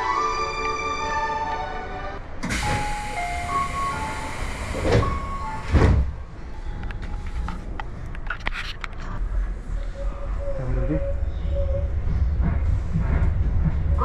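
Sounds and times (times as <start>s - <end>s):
station ambience: 0.0s - 14.0s
train rushing rumble: 9.1s - 14.0s.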